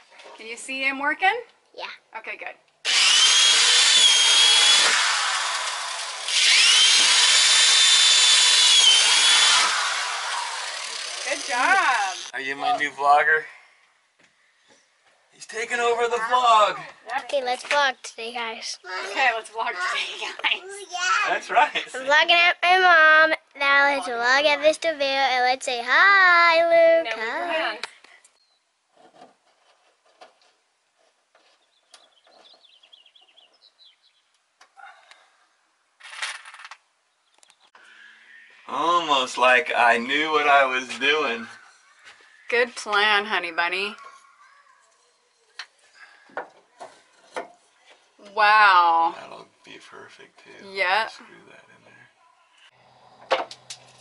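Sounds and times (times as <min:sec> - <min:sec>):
electric drill whining: 0:02.9 - 0:12.4.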